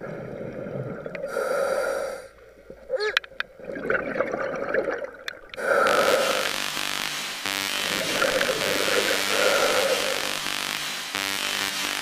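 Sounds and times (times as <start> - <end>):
underwater breathing and bubbling: 0.0 - 6.6, 7.9 - 10.3.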